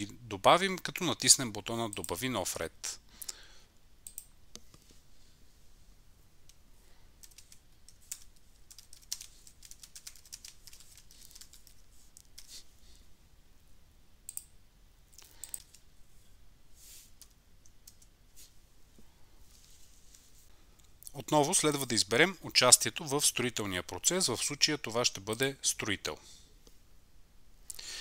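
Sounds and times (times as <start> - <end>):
computer keyboard typing: 7.2 - 12.5, 15.4 - 15.8, 17.2 - 18.1.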